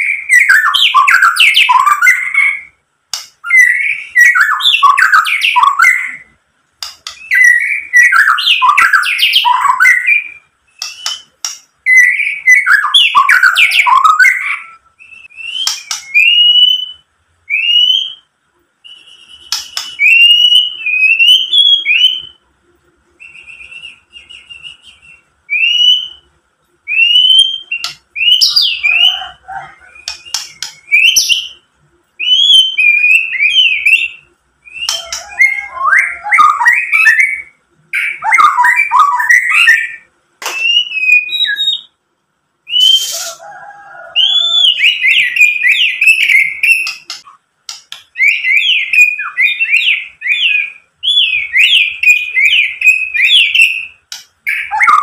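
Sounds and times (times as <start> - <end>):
bird whistling song: 0.0 - 22.4, 23.2 - 42.0, 42.6 - 43.5, 44.1 - 55.0
sharp bird clicks: 6.8 - 7.4, 10.8 - 11.7, 15.6 - 16.3, 19.5 - 20.2, 30.0 - 31.4, 45.7 - 48.5.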